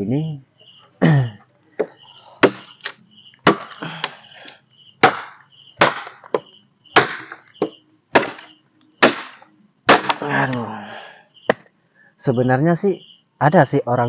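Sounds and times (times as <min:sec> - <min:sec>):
machete chopping wet wood: 0:02.4 - 0:04.2, 0:05.0 - 0:10.6.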